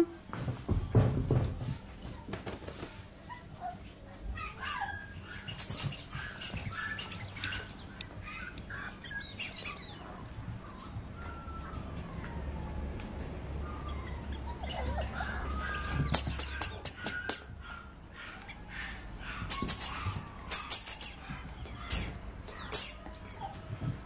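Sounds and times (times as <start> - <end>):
rubber squeaky toy squeaking: 4.4 - 10.0, 13.7 - 17.5, 19.5 - 23.4.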